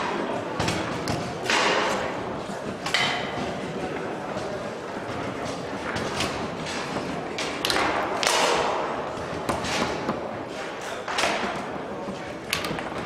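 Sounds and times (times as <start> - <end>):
foosball ball and rods knocking: 5.2 - 10.3.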